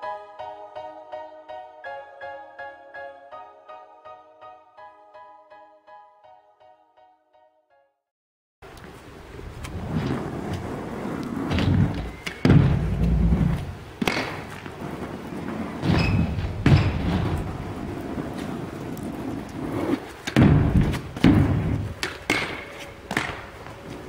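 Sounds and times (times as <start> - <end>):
scooter wheels rolling on concrete: 8.7 - 24.0
scooter landing thuds and clacks: 11.4 - 18.8, 19.9 - 23.7.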